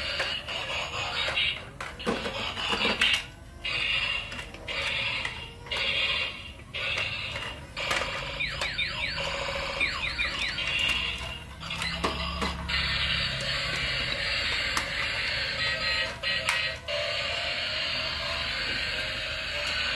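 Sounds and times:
toy alarm-like pulsing tone: 0.1 - 19.9.

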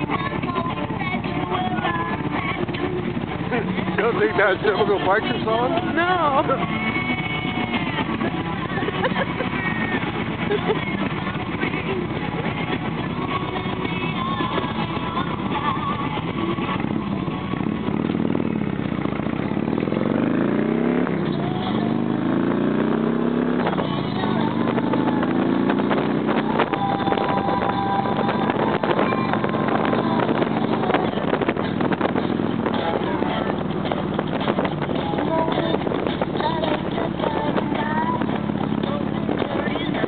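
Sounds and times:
motorcycle engine accelerating: 0.0 - 40.0.

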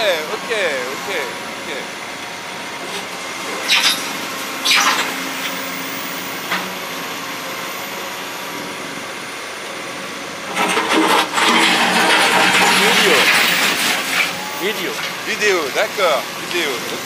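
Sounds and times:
excavator diesel engine running: 0.0 - 17.0.

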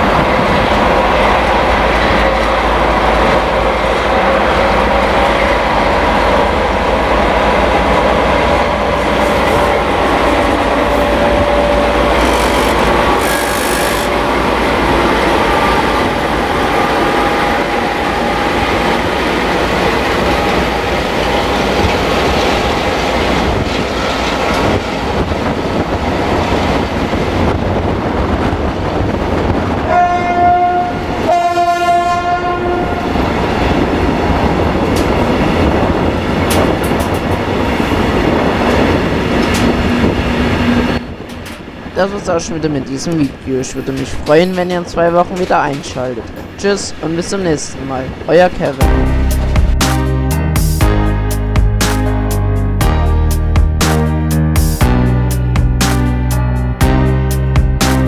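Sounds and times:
diesel locomotive engine running: 0.0 - 30.0
train wheel squeal: 11.0 - 14.2.

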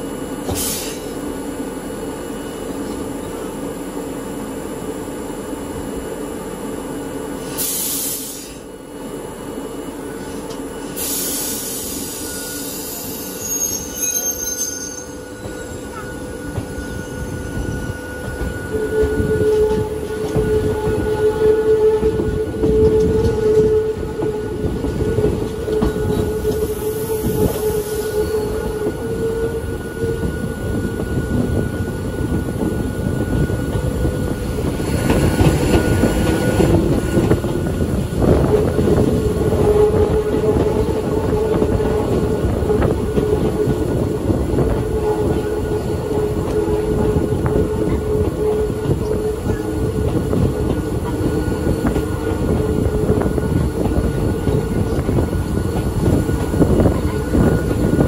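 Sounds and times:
train wheels rumbling on rails: 0.0 - 58.0
faint high squeal: 11.6 - 22.3
wheel squeal: 12.0 - 21.6.

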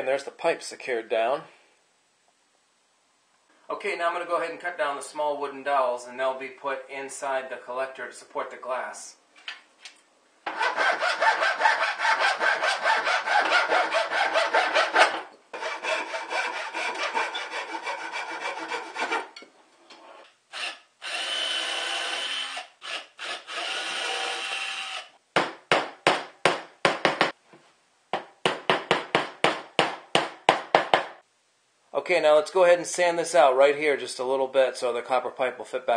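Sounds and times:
hand saw cutting wood: 10.5 - 19.4.

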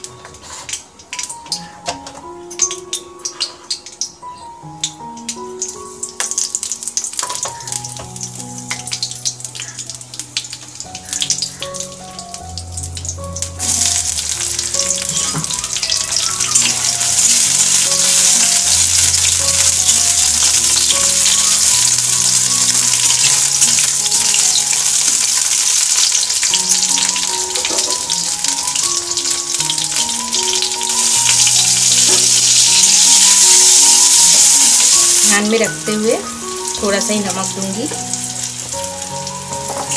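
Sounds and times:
food sizzling in hot oil: 2.4 - 39.9.

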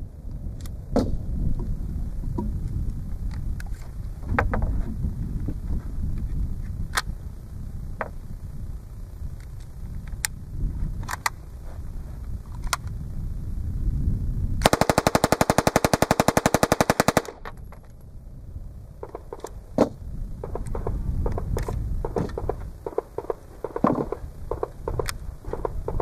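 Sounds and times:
submachine gun full-auto burst: 14.6 - 17.4.

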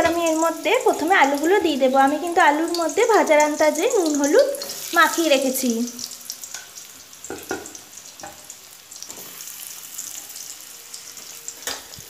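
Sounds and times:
oil sizzling in a pan: 0.0 - 12.0
wedges knocking into pan: 7.3 - 8.4.

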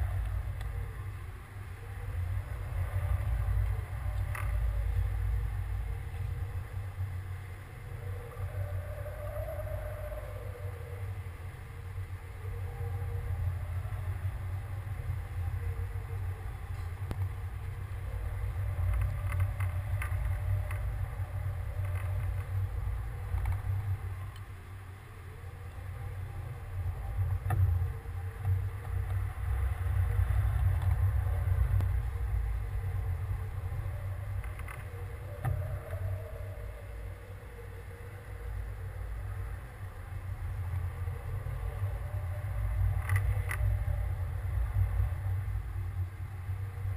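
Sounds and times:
wind buffeting microphone: 0.0 - 46.9
small clicks and knocks: 18.8 - 21.0, 21.6 - 24.5, 34.3 - 36.1, 42.8 - 43.9.

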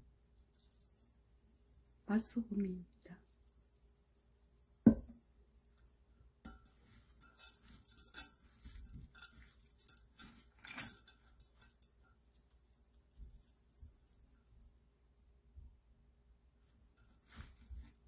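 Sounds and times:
wet rustling of greens in bowl: 0.4 - 2.1, 6.5 - 14.6, 16.6 - 18.0
sharp knock: 4.9 - 5.1.

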